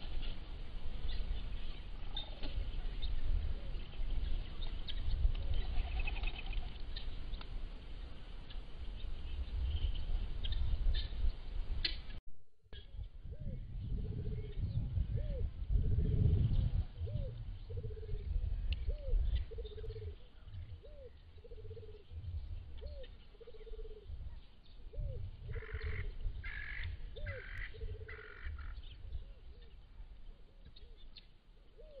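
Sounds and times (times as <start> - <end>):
wind on microphone: 0.0 - 12.2, 12.8 - 31.1
short raspy calls: 5.5 - 6.8, 25.5 - 28.8
dove cooing: 13.3 - 18.3, 18.9 - 22.2, 22.8 - 24.2, 24.9 - 29.7.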